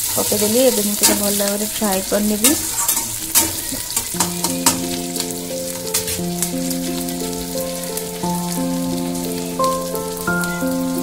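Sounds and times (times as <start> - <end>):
stirring clicks: 0.0 - 7.0
onions sizzling in hot oil: 0.0 - 11.0
soft background melody: 0.3 - 11.0.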